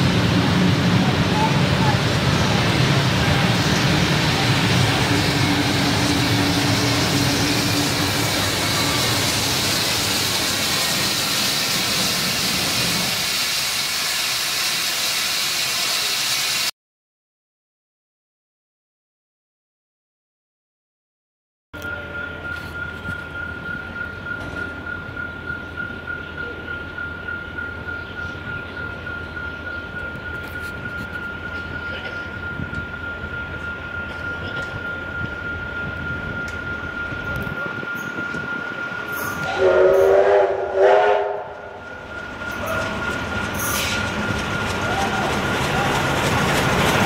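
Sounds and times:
train rumbling: 0.0 - 16.7, 21.8 - 47.0
level-crossing bells ringing: 21.8 - 39.5
steam locomotive whistle blasts: 39.1 - 41.8.

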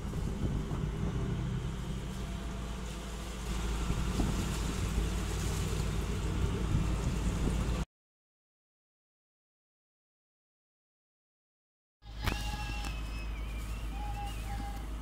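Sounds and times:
diesel engine running: 0.0 - 7.8, 12.0 - 15.0.

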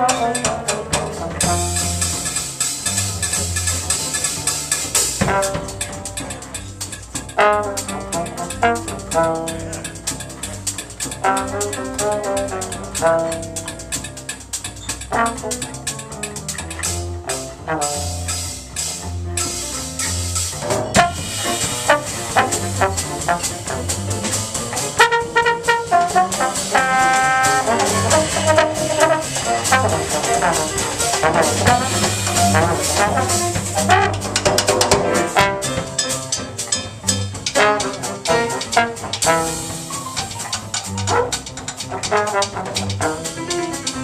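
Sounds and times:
jazz trombone solo: 0.0 - 6.6, 7.3 - 14.2, 15.1 - 44.0
drum kit: 0.0 - 44.0
walking bass line: 0.0 - 44.0.

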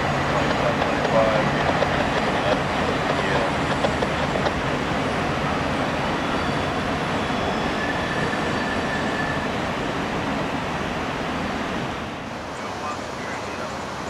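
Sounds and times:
fast river rushing: 0.0 - 14.0
train wheels rumbling on rail: 0.0 - 14.0
faint high squeal: 5.4 - 9.5.

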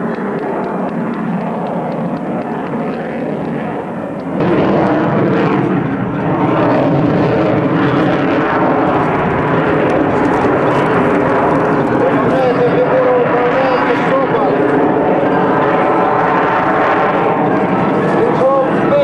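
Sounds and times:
jet engine roar: 0.0 - 19.0.

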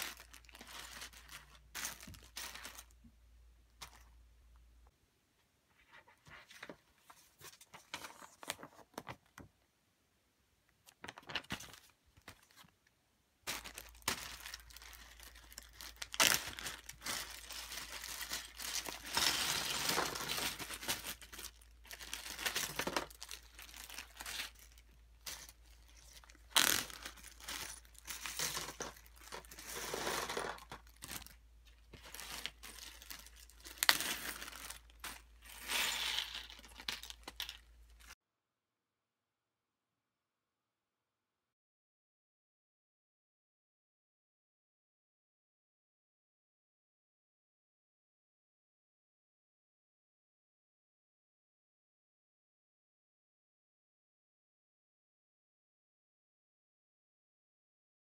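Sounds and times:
plastic bag crinkling: 0.0 - 3.0, 13.5 - 38.2
plastic parts rattling: 13.5 - 38.1.

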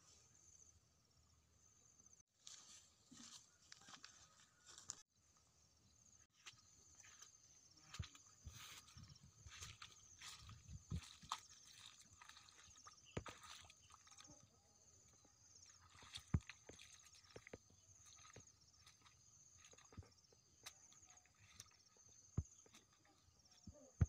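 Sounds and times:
footsteps on muddy path: 6.4 - 23.9.

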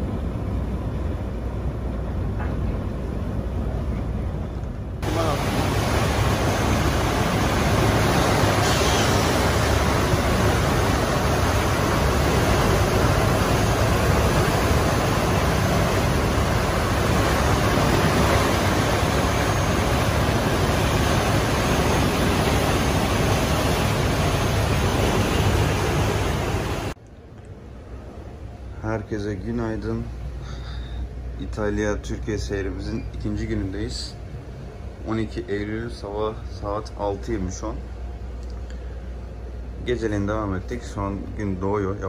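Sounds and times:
boat wake rushing: 0.0 - 27.0
low engine rumble: 0.0 - 42.0
wind: 0.0 - 42.0.

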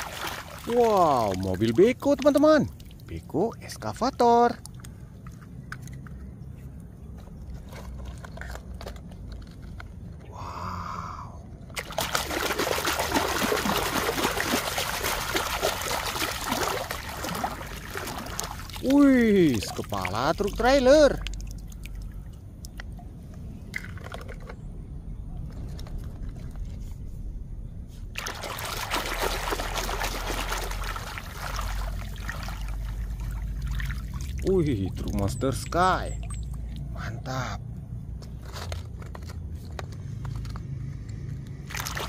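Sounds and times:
water splashing over toy: 0.0 - 3.1, 11.7 - 22.8, 28.2 - 36.9, 41.6 - 42.0.

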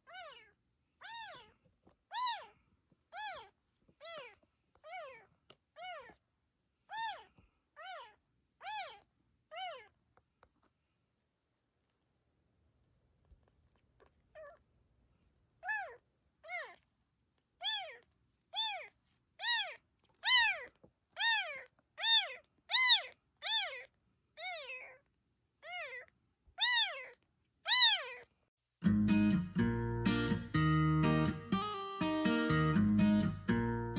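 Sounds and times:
kitten meowing: 0.0 - 6.2, 6.9 - 10.0, 15.6 - 16.8, 17.6 - 18.0, 18.6 - 25.0, 25.6 - 28.3
strummed acoustic guitar music: 28.8 - 33.9.

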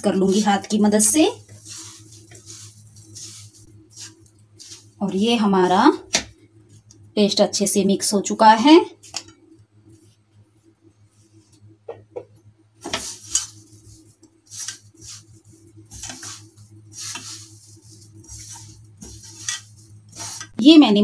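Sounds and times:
fingers scraping mixture in a pan: 0.0 - 6.0, 12.8 - 20.6
low steady hum: 0.0 - 21.0.

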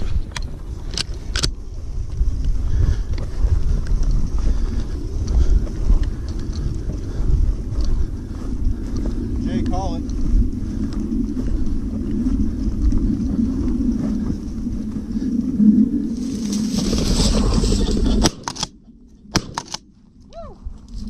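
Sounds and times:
wind rumbling on microphone: 0.0 - 21.0
dry grass brushing: 15.9 - 18.2.

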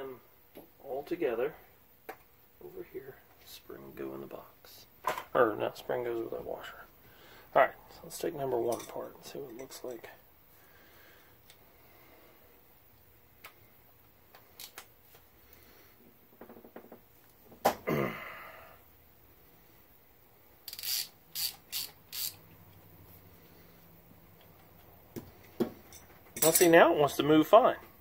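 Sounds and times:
wrench clicks and scrapes on metal: 20.7 - 22.4.

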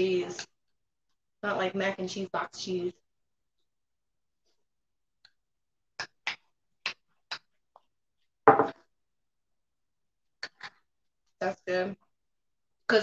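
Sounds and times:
spoon knocking on mug: 8.5 - 8.8.

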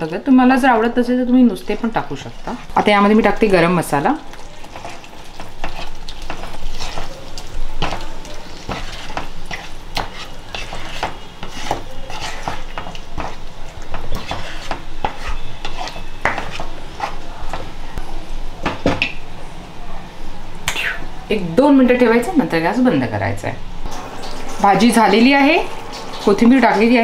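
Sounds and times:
gravy sizzling: 0.0 - 19.4, 23.8 - 27.0
spatula scraping pan: 2.0 - 3.3, 4.5 - 17.8.

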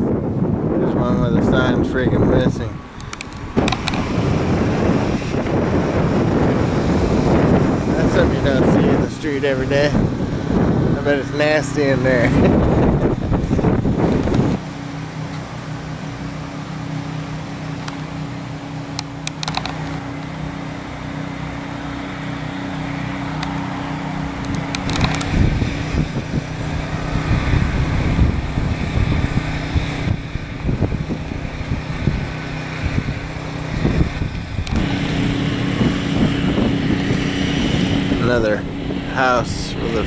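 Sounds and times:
engine hum: 0.0 - 40.0
wind on microphone: 0.0 - 40.0
light clicks: 3.0 - 4.1, 18.9 - 20.0, 24.4 - 25.4.

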